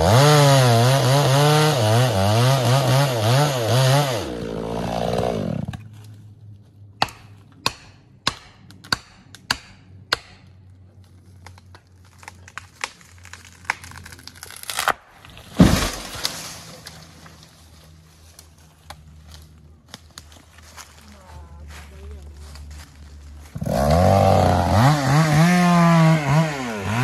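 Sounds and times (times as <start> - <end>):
chainsaw winding down: 0.0 - 5.7, 23.6 - 27.0
wood and branches cracking: 7.0 - 24.9
tree trunk crashing to ground: 11.5 - 17.6.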